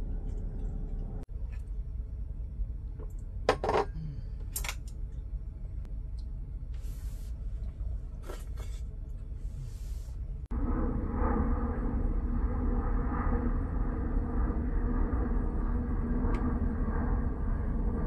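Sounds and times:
low rumble: 0:00.0 - 0:18.0
soft brushing: 0:06.8 - 0:07.6, 0:08.2 - 0:10.3.

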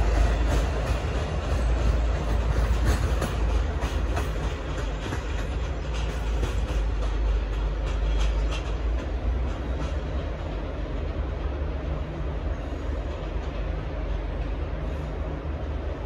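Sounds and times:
train low rumble: 0:00.0 - 0:16.0
train wheels clacking on rail joints: 0:00.0 - 0:16.0.

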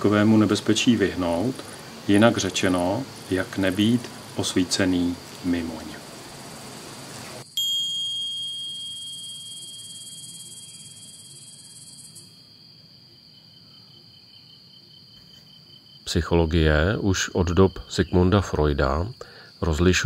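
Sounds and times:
bright high-pitched chime ringing: 0:07.5 - 0:12.4.

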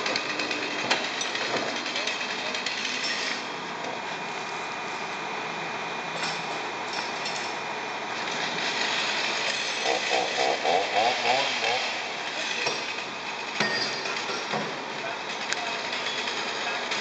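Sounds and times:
construction machinery running: 0:00.0 - 0:17.0
metallic clinks of tools: 0:13.6 - 0:14.6.

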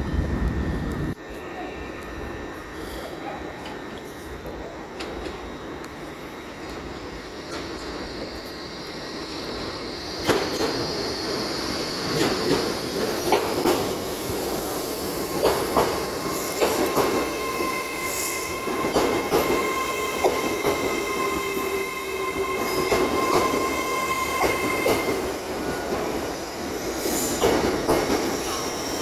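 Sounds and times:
train wheels clicking over rail joints: 0:15.2 - 0:17.3.

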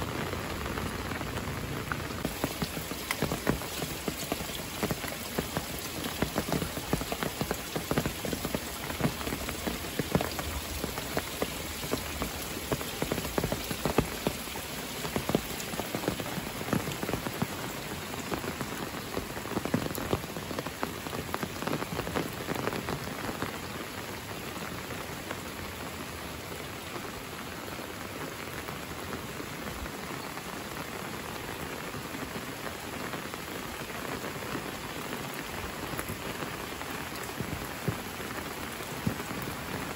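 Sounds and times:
raindrop hits: 0:00.0 - 0:23.6, 0:34.1 - 0:39.9
steady rain hiss: 0:00.0 - 0:39.9.

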